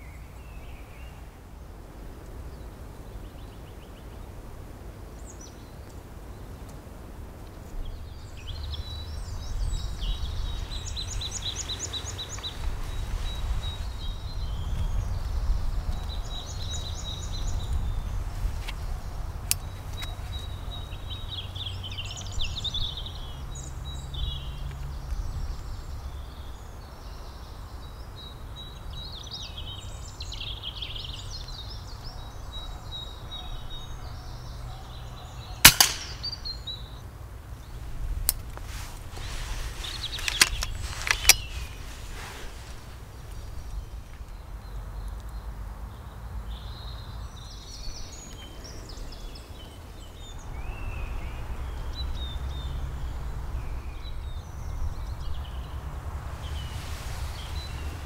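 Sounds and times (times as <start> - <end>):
birds singing trills: 7.7 - 37.8, 39.2 - 55.8, 56.4 - 58.0
air rifle shot: 35.6 - 36.7.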